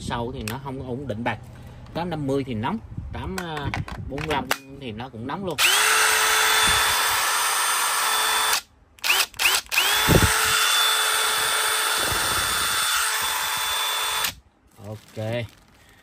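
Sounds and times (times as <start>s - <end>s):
impact driver motor whine: 5.6s - 14.4s.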